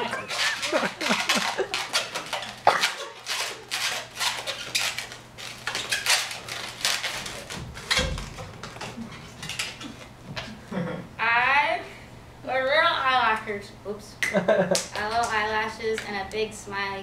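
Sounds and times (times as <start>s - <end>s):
balloon squeaking and creaking: 0.0s - 10.0s.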